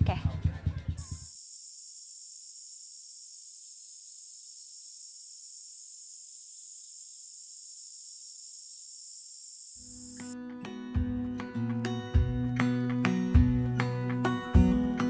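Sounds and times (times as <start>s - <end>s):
high-pitched insect chorus: 1.0s - 10.4s.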